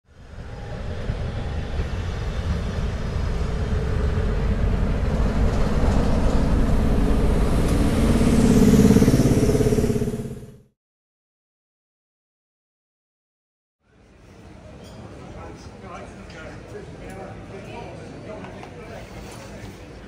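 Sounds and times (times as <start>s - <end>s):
diesel locomotive engine rumbling: 0.1s - 10.7s.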